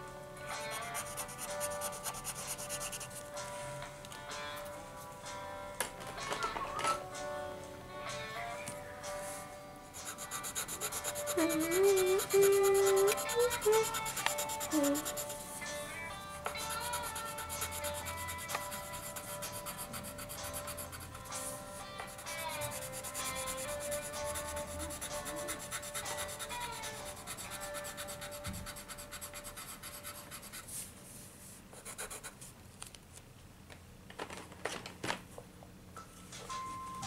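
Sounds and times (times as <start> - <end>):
faint background music: 0.0 - 32.4, 33.8 - 37.0
pencil scribbling on paper: 0.7 - 3.3, 10.0 - 15.4, 16.5 - 30.7, 31.8 - 32.3.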